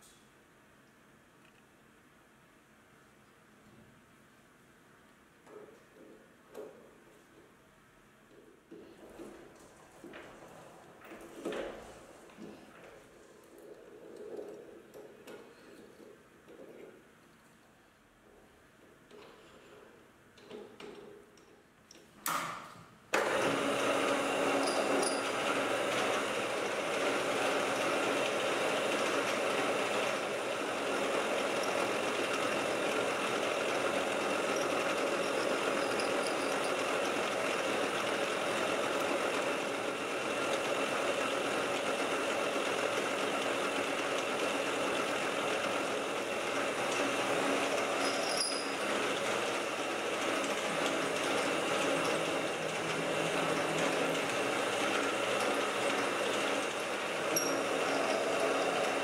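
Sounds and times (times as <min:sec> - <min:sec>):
metal lathe running: 0:23.2 - 0:59.0.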